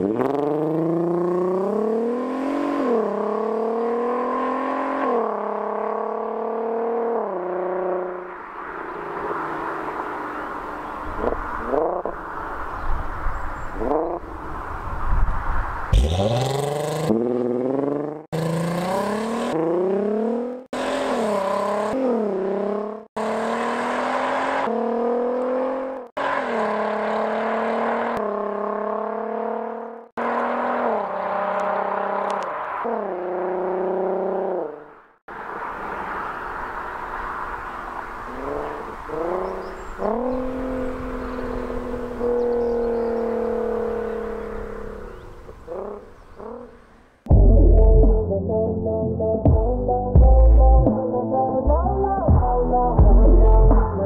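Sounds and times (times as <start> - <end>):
car engine accelerating: 0.0 - 8.3, 15.9 - 36.2, 37.9 - 46.8.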